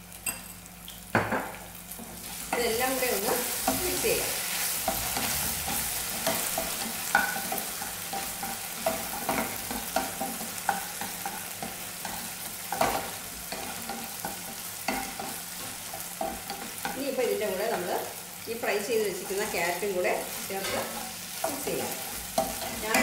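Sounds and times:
sauce sizzling in hot oil: 0.0 - 23.0
wooden spatula scraping a pan: 2.0 - 17.9.

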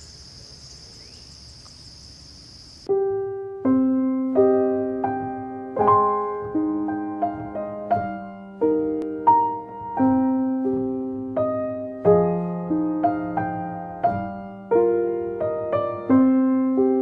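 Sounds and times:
high insect trill: 0.0 - 2.9
slow solo piano music: 2.9 - 17.0.

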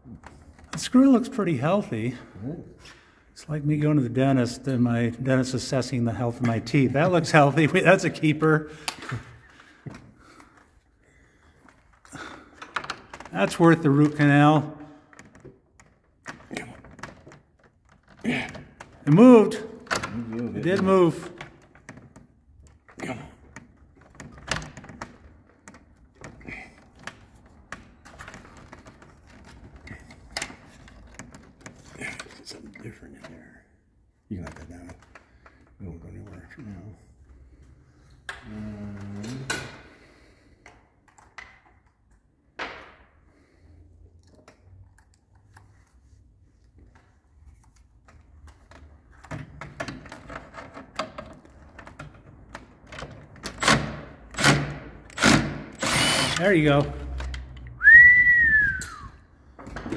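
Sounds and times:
tools tapping and scraping on plastic: 8.8 - 33.4, 34.2 - 43.2, 44.2 - 55.8
power drill bursts: 54.4 - 56.7.

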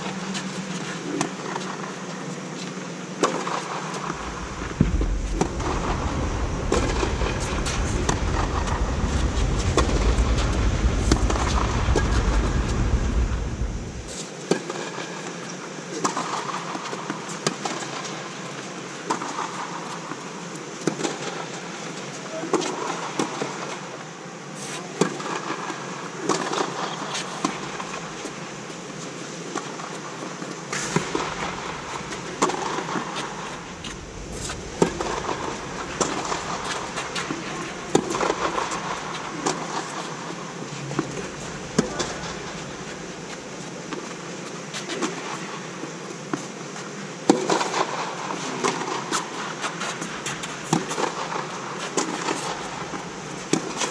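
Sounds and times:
steady hall hum: 0.0 - 14.5, 26.9 - 53.9.

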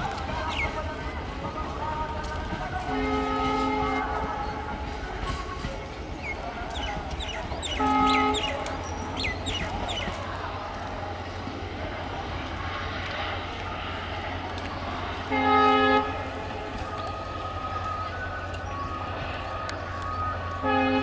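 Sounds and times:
train rumbling: 0.0 - 21.0
train horn blast: 2.8 - 4.4, 7.6 - 8.8, 15.2 - 16.6, 20.6 - 21.0.

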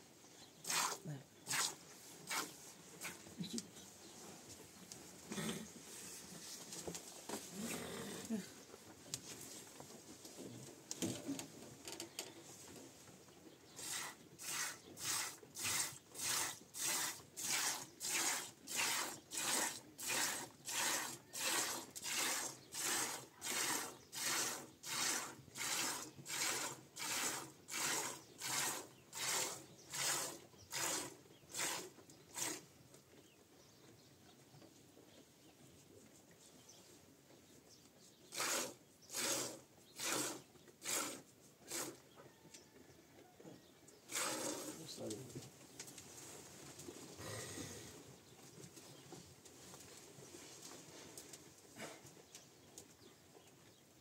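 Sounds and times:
milk squirting into plastic bucket: 13.8 - 32.6, 38.3 - 42.0, 44.1 - 44.8.

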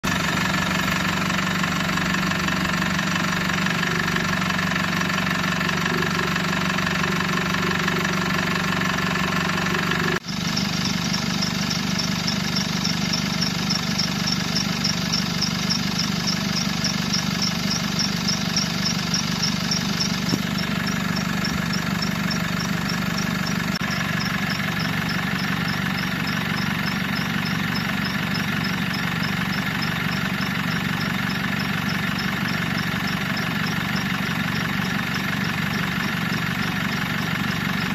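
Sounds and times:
diesel engine idling: 0.0 - 37.9
fast high-pitched ticking: 0.1 - 37.9.

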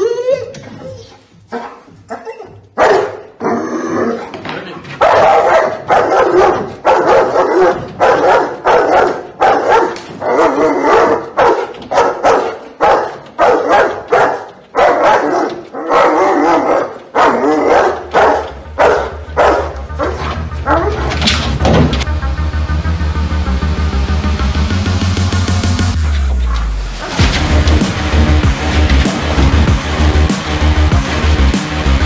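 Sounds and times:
dog barking: 1.0 - 3.3, 5.0 - 21.2
electronic music with low beat: 18.0 - 21.2, 21.8 - 32.0.

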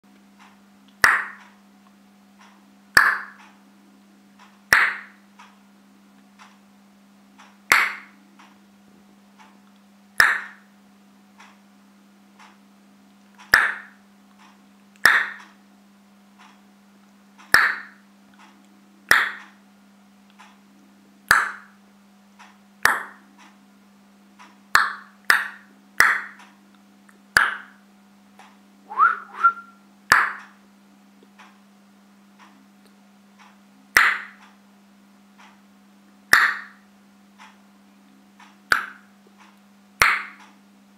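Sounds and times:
steady low hum: 0.1 - 40.9
hand claps: 1.0 - 1.4, 3.0 - 3.4, 4.7 - 5.1, 7.7 - 8.1, 10.2 - 10.6, 13.5 - 13.9, 15.0 - 15.4, 17.5 - 17.9, 19.1 - 19.4, 21.3 - 21.6, 24.8 - 26.4, 27.4 - 27.7, 34.0 - 34.4, 36.3 - 36.7, 40.0 - 40.4.

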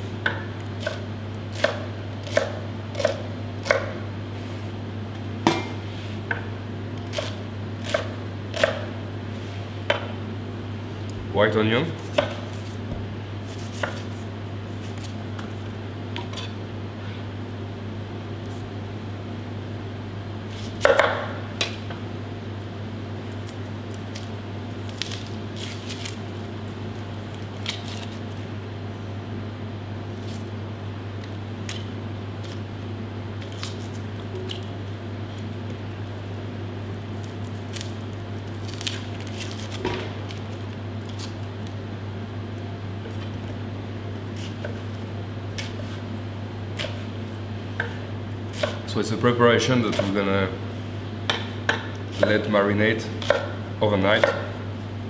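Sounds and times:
steady low hum: 0.0 - 55.0
knife chopping on cutting board: 0.2 - 4.0, 5.4 - 8.9, 12.0 - 14.2, 46.8 - 47.1, 47.8 - 48.9, 49.9 - 50.2, 51.3 - 52.5, 53.2 - 54.6.

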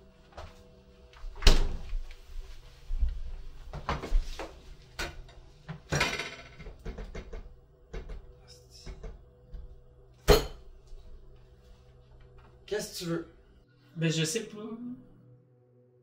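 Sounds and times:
dishes rattling clatter: 5.0 - 8.2.

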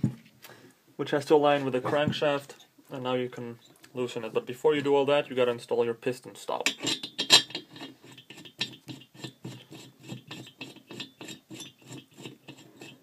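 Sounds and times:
metal scraping clicks: 6.6 - 9.4.

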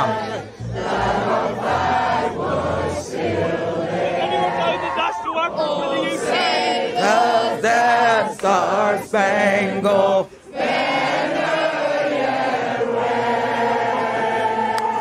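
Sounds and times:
crowd singing: 0.0 - 15.0.

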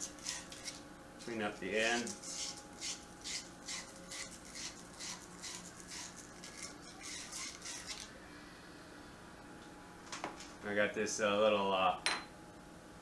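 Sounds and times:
sandpaper scratching on metal pipe: 1.8 - 8.0.

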